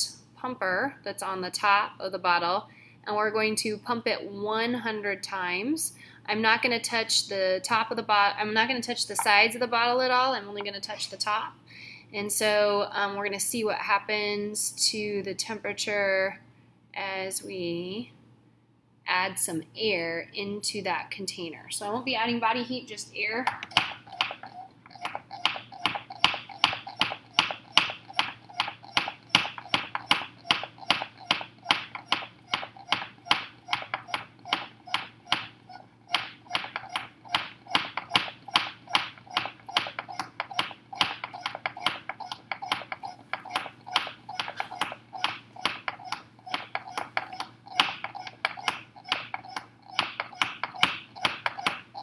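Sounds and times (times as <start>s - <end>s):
hand pump puffing air: 23.5s - 52.0s.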